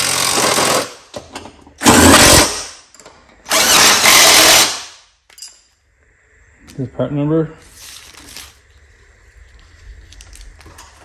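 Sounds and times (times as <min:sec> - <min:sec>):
cordless drill driving bolts: 0:03.5 - 0:04.8.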